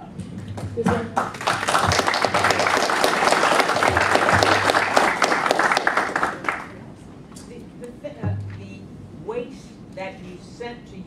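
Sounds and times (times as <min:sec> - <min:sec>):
audience applauding: 0:01.1 - 0:06.8.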